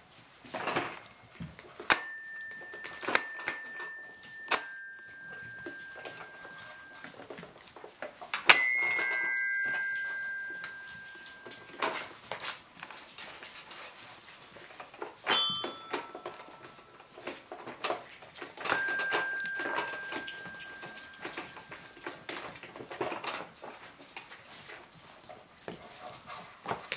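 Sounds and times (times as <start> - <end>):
paws clicking on tile floor: 0.0 - 26.9
toy keyboard chime notes: 1.9 - 7.3, 8.4 - 12.2, 15.3 - 17.0, 18.6 - 22.6.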